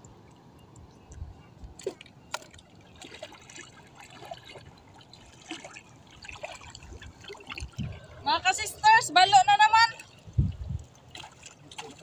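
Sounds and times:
water drips and plinks: 0.0 - 8.1
water trickling and splashing: 0.0 - 12.0.

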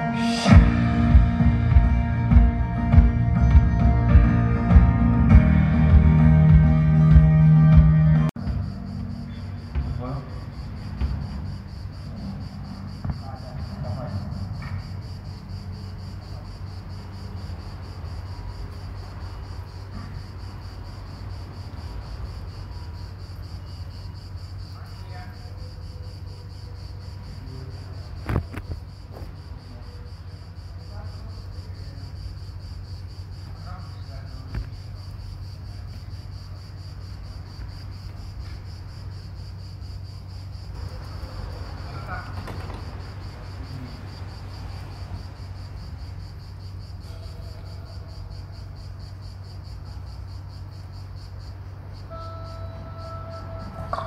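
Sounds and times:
insects chirping: 0.0 - 54.0
sharp knocks: 9.7 - 11.7.

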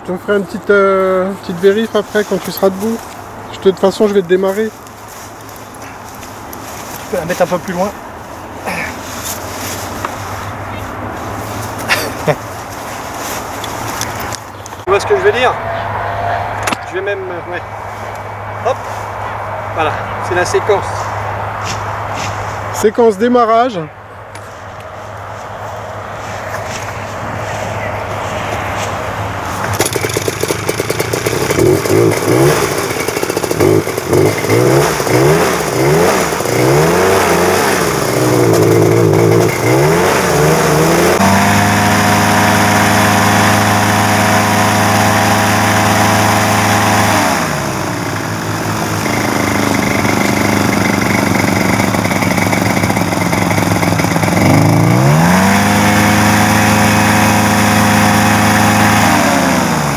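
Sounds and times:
paramotor engine and propeller: 25.6 - 59.9.

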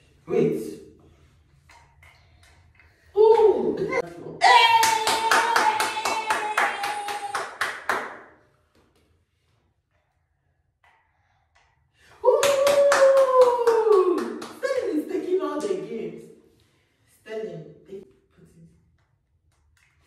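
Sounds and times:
woman clapping quickly: 4.8 - 8.2.

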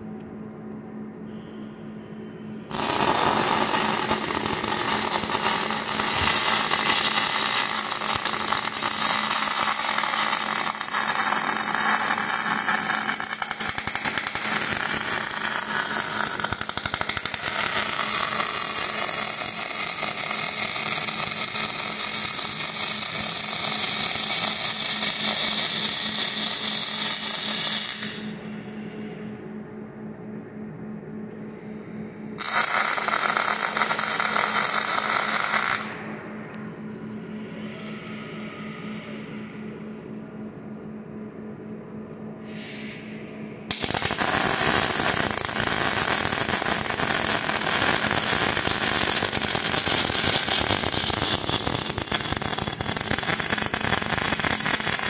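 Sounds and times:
steady low hum: 0.0 - 55.0
welding arc crackling: 2.7 - 28.3, 32.4 - 36.0, 43.7 - 55.0.

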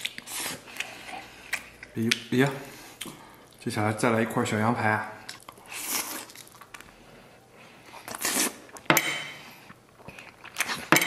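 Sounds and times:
wet sucking and chewing: 0.0 - 2.0, 5.2 - 7.0, 7.8 - 8.8.

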